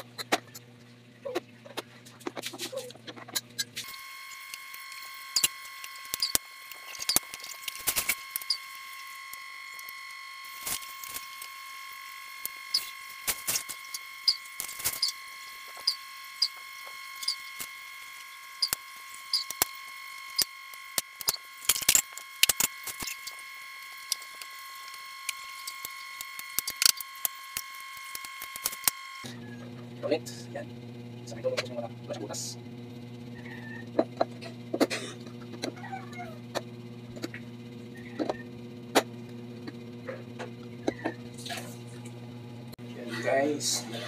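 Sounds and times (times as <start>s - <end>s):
high-pitched whine: 2.8s - 34.5s.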